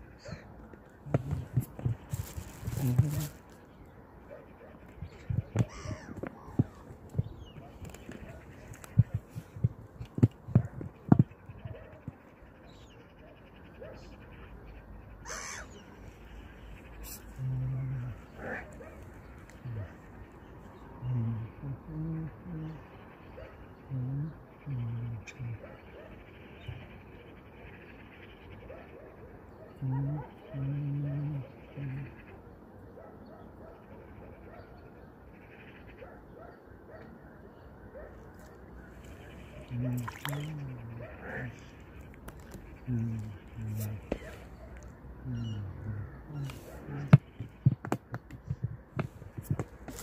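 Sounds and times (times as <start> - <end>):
gulls calling: 0.0 - 23.9, 37.8 - 50.0
low steady background: 0.0 - 50.0
faint animal cries: 5.2 - 6.8, 15.2 - 18.8
heavy dull thumps: 8.1 - 12.2.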